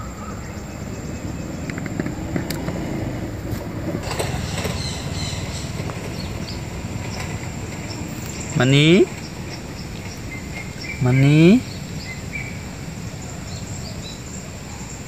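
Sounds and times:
vehicle passing: 0:00.0 - 0:14.7
road traffic rumble: 0:00.0 - 0:15.0
faint clicks: 0:01.6 - 0:02.8, 0:05.5 - 0:11.0.

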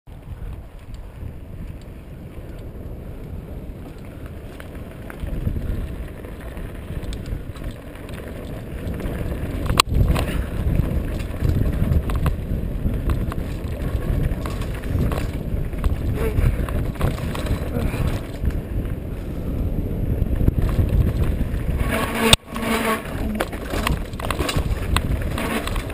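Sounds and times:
bike rattling: 0:00.1 - 0:25.9
wind buffeting microphone: 0:00.1 - 0:25.9
tyres crunching over loose rock: 0:03.8 - 0:18.6, 0:20.4 - 0:25.9
bike clacking on rock: 0:03.8 - 0:19.0, 0:20.3 - 0:25.9.

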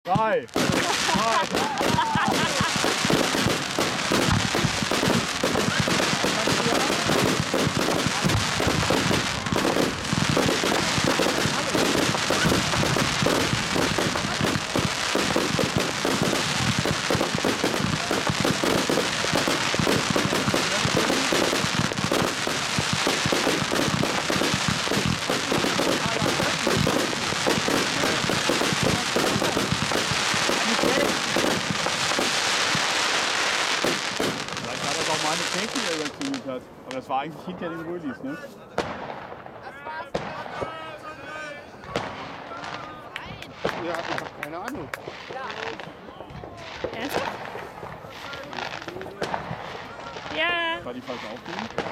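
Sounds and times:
fireworks barrage crackling: 0:00.1 - 0:51.9.

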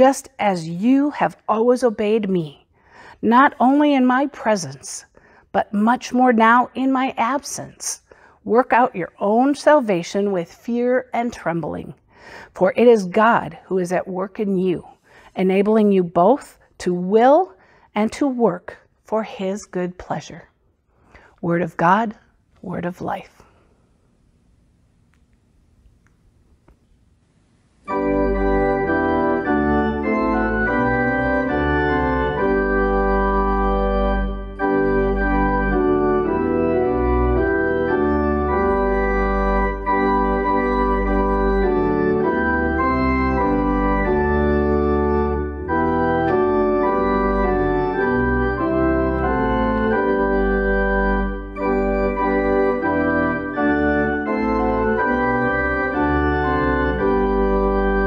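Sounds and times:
church organ playing a hymn: 0:27.8 - 0:58.0.

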